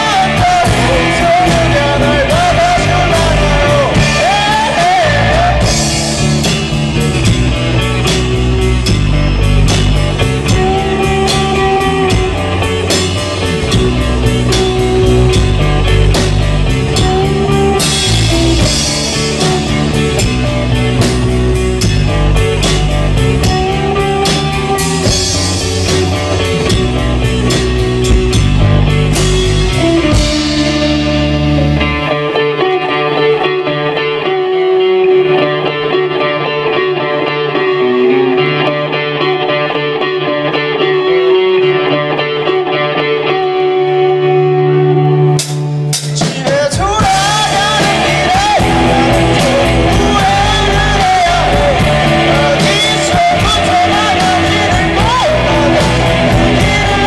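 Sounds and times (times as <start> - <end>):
electric guitar playing alone: 0.0 - 57.0
live rock band playing: 0.0 - 57.0.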